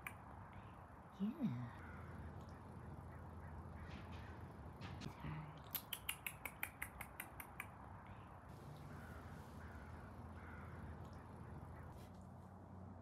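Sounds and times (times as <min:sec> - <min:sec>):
faint steady background noise: 0:00.0 - 0:13.0.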